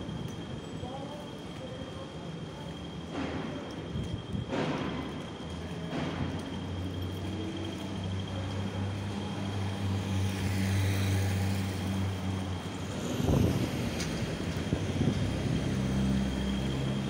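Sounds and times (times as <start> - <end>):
vehicle engine hum: 5.4 - 17.0.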